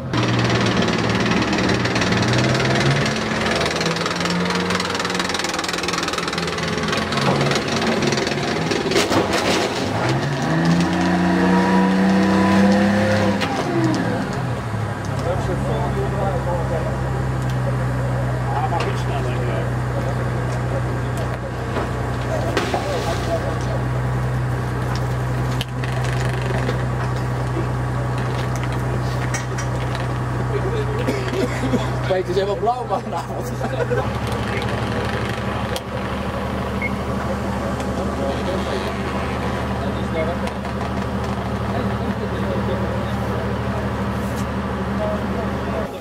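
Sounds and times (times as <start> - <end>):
tracked vehicle engine revving: 0.0 - 46.0
car crunching and cracking: 1.8 - 14.4, 34.0 - 41.7.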